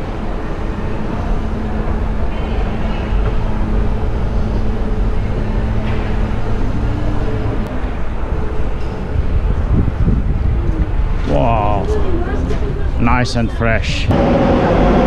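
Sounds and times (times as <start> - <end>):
escalator rumble and hum: 0.0 - 15.0.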